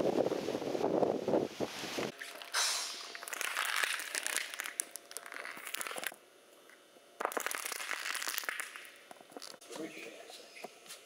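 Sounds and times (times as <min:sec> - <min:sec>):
wind rumbling on microphone: 0:00.0 - 0:02.1.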